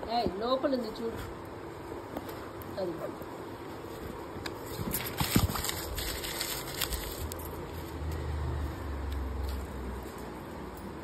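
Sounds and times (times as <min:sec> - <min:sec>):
crumpled paper crackling: 0:04.6 - 0:07.5.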